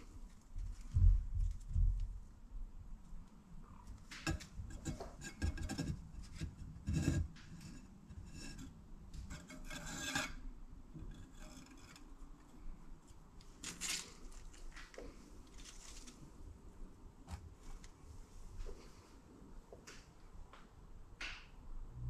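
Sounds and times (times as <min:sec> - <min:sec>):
rubbing and scraping on table: 0:04.2 - 0:10.4.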